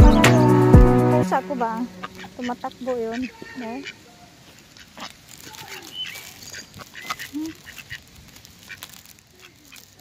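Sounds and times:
ducks quacking: 0.0s - 10.0s
chirps and clicks: 4.5s - 9.9s.

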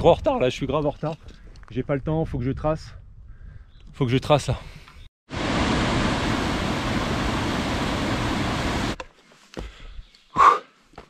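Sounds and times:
waterfall rushing into a pool: 5.3s - 9.0s.

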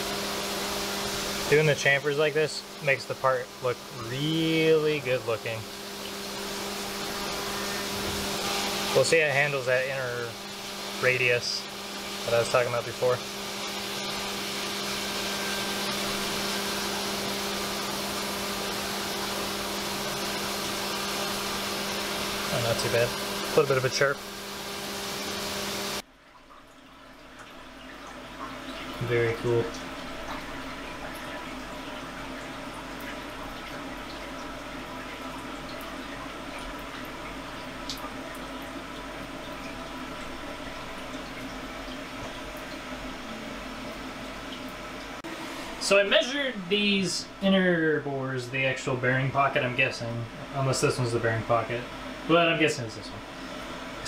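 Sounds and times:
coolant spray hiss: 0.0s - 26.0s
mill spindle running: 0.0s - 26.0s, 27.2s - 54.0s
coolant trickling and dripping: 0.0s - 54.0s.

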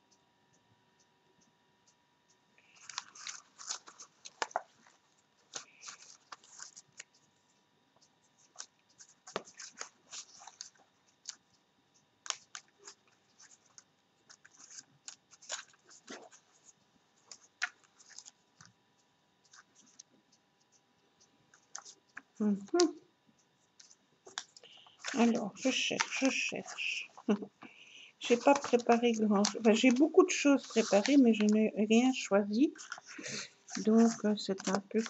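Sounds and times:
hands rummaging in plastic tub: 25.0s - 27.5s, 28.2s - 35.0s.

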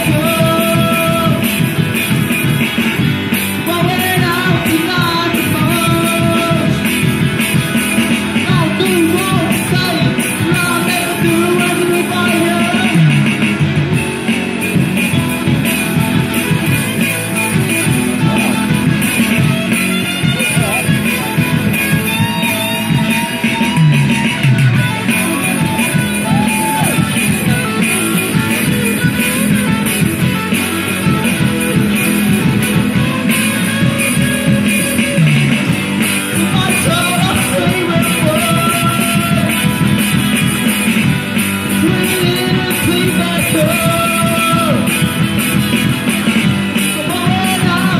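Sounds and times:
person singing: 0.0s - 1.6s, 3.6s - 7.1s, 8.4s - 13.2s, 36.3s - 40.0s, 41.6s - 45.2s, 46.8s - 47.9s
bass guitar: 0.0s - 47.9s
drums: 0.0s - 47.9s
electric guitars: 0.0s - 47.9s
rock band playing live: 0.0s - 47.9s.

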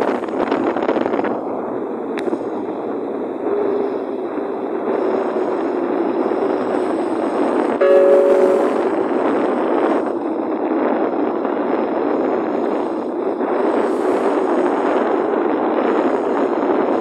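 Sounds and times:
wind rushing over microphone: 0.0s - 17.0s
faint jet engine hum: 1.1s - 10.6s.

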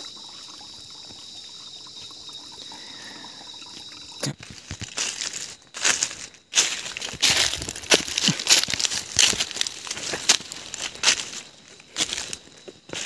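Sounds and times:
water trickling: 0.0s - 13.0s
footsteps on dry leaves: 4.5s - 13.0s.

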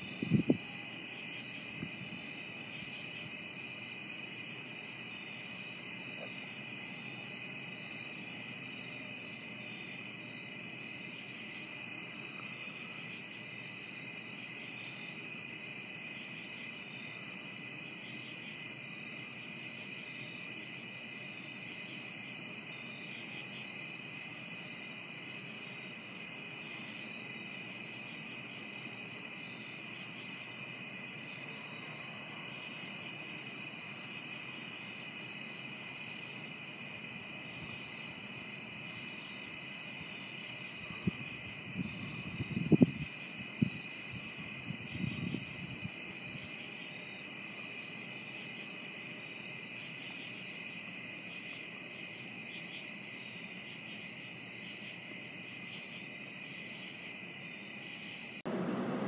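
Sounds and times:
crickets and insects trilling: 0.0s - 59.0s
high-pitched insect pulsing: 5.3s - 14.4s, 44.4s - 48.6s.

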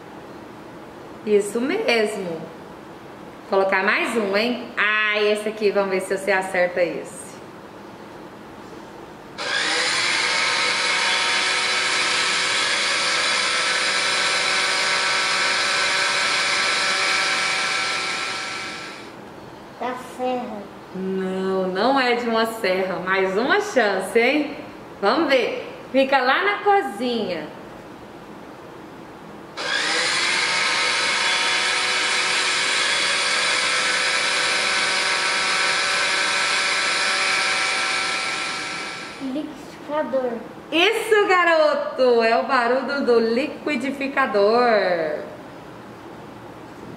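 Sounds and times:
electric blender running: 9.4s - 19.2s, 29.6s - 39.4s.

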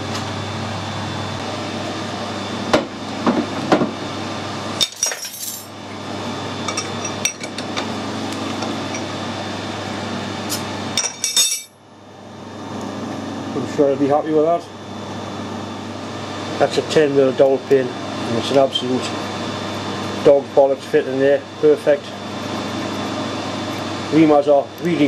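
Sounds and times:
steady machine hum: 0.0s - 25.0s
metal tools clinking: 4.8s - 5.7s, 11.0s - 11.8s.

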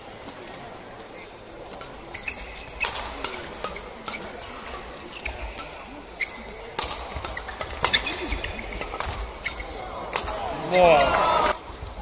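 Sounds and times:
sports hall background: 0.0s - 12.0s
rackets striking shuttlecock: 1.7s - 11.6s
shoes squeaking on court: 1.8s - 9.9s.

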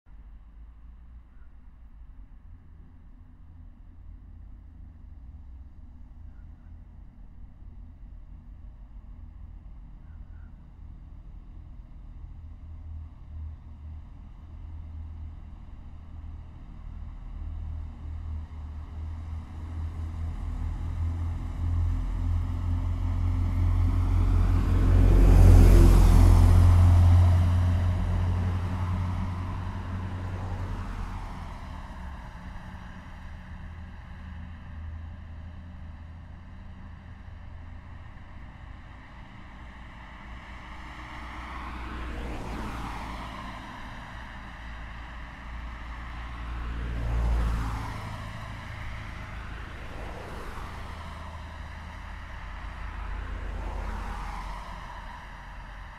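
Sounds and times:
low rumble of passing cars: 0.1s - 55.9s
vehicle passing close: 20.7s - 33.2s.

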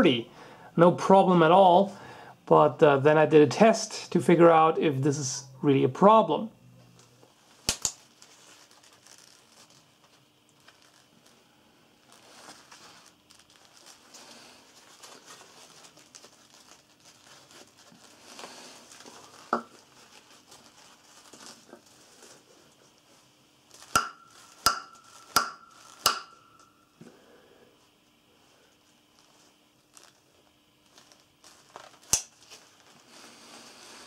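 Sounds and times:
leather gloves rustling: 7.4s - 26.1s, 28.9s - 34.0s
knife striking wooden log: 24.0s - 26.3s.

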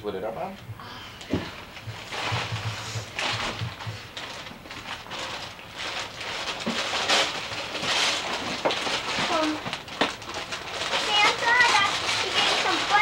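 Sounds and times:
wrapping paper rustling and tearing: 1.6s - 13.0s.

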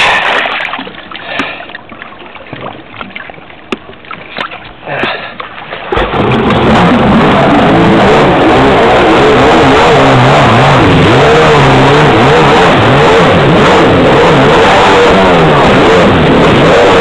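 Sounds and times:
water lapping against hull: 0.0s - 8.0s
jet ski engine running: 0.0s - 17.0s.

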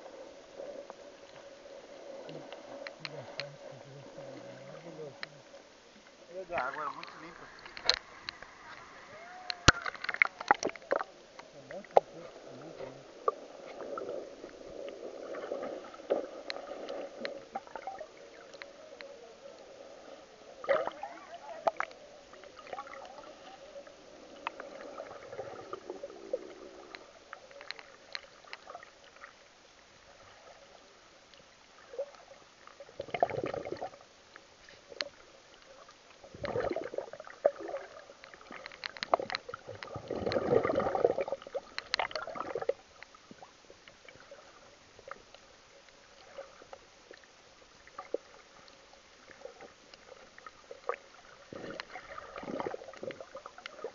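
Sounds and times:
water surges: 0.0s - 53.9s
water gurgling underwater: 6.4s - 29.4s, 31.7s - 34.1s, 34.9s - 44.7s, 46.2s - 53.9s.

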